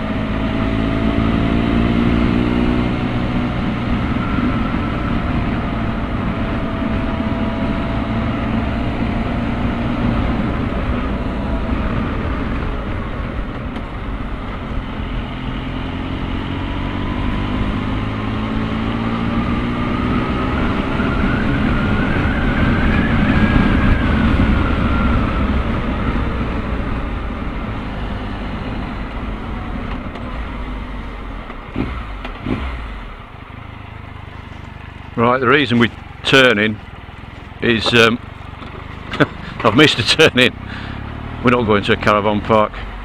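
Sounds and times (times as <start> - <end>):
wind rushing over microphone: 0.0 - 32.9
motorcycle engine: 0.0 - 43.0.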